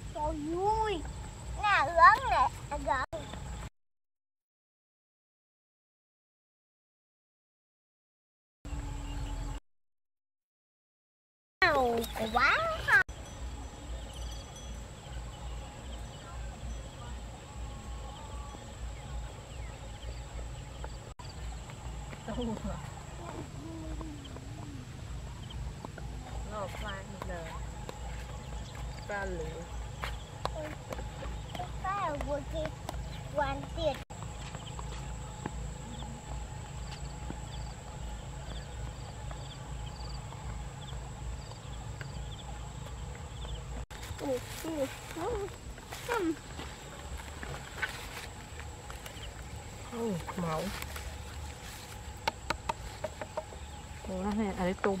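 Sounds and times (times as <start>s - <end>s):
thin steady high tone: 11.8s - 25.6s
steady low rumble: 13.1s - 55.0s.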